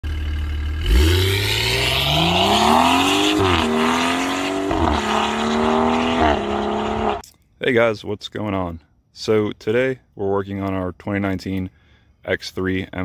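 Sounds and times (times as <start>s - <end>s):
car engine accelerating hard: 0.1s - 7.2s.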